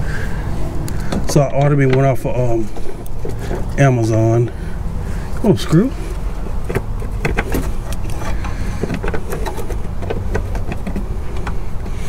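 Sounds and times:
screws clicking and scraping on plastic: 0:06.1 - 0:12.0.

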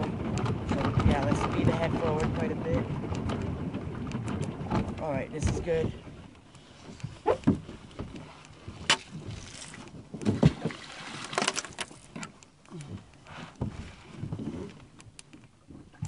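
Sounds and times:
clothing brushing against hull: 0:00.0 - 0:12.3, 0:13.0 - 0:15.0
knocks in plastic kayak: 0:10.0 - 0:11.9.

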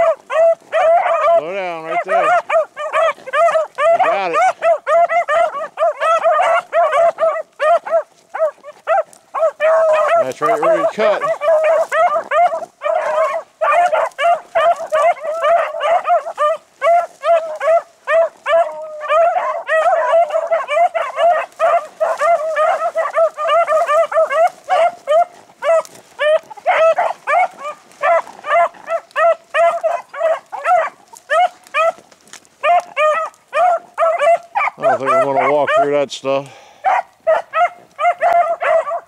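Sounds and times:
beagles baying: 0:00.0 - 0:39.0.

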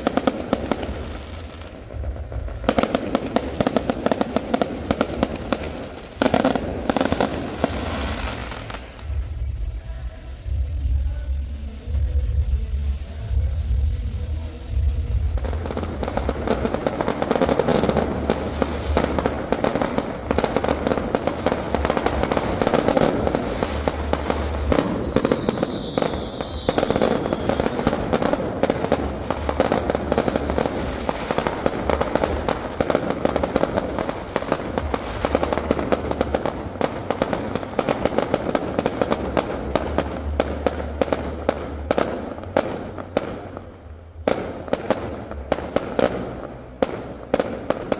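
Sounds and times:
fireworks crackling and bursting: 0:00.0 - 0:47.9
firework whistle: 0:04.2 - 0:41.4.

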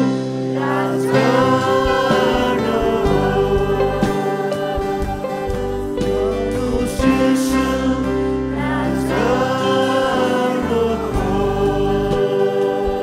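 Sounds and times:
held instrumental chords: 0:00.0 - 0:13.0
man singing into a microphone: 0:06.1 - 0:13.0.

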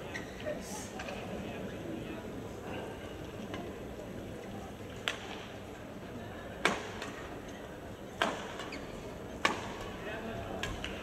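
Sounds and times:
murmur of voices: 0:00.0 - 0:11.0
rackets hitting shuttlecock: 0:09.4 - 0:09.9.

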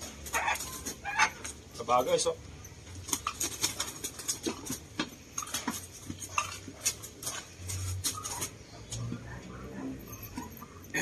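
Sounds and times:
handling clicks knocks and scuffles: 0:02.8 - 0:09.2.

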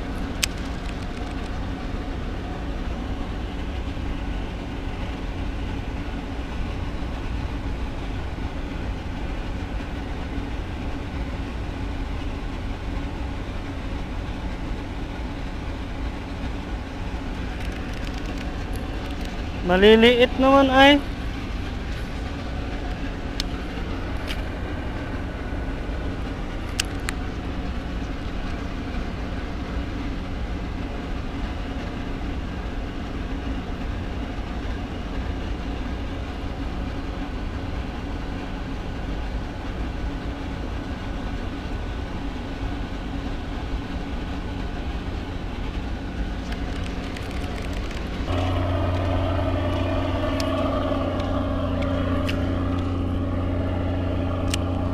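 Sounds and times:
low motor hum: 0:00.0 - 0:29.0, 0:46.2 - 0:54.9
outdoor background noise: 0:00.0 - 0:54.9
louder engine sound: 0:47.0 - 0:54.9.

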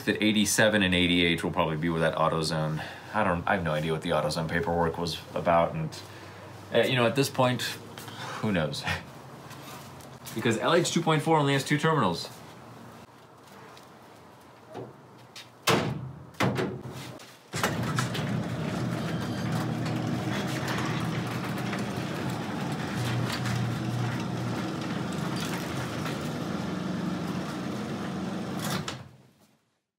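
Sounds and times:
garage door opener running: 0:17.5 - 0:29.1.

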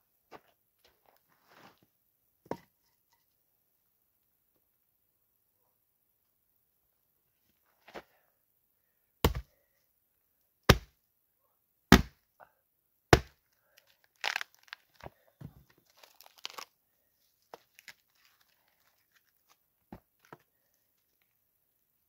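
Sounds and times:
hatchet chopping log: 0:09.2 - 0:09.5, 0:10.7 - 0:10.9, 0:11.9 - 0:12.2, 0:13.1 - 0:13.4
wood cracking as torn apart: 0:14.2 - 0:14.9, 0:16.0 - 0:16.7.

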